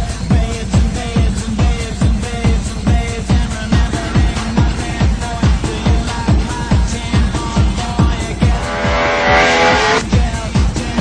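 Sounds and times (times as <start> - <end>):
electronic dance music: 3.6 - 10.0.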